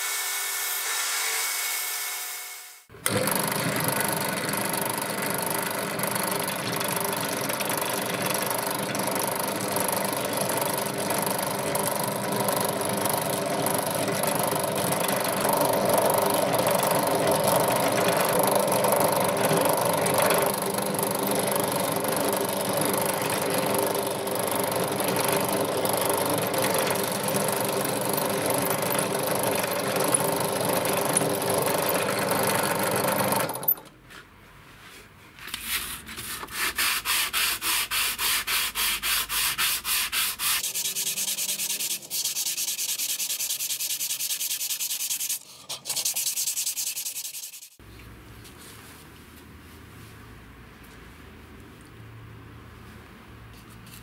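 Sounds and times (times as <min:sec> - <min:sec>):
drill press boring through steel: 0:03.0 - 0:33.8
rubbing on sandpaper: 0:34.8 - 0:47.8.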